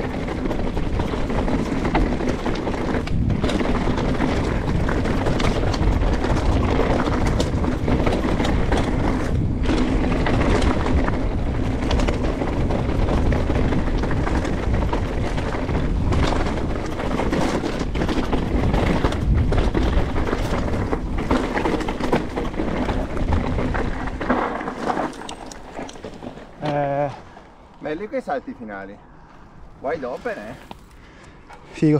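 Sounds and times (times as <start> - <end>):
wind on microphone: 0.0 - 24.7
bike rattling: 0.0 - 31.9
tyres rumbling over dirt: 0.0 - 31.9.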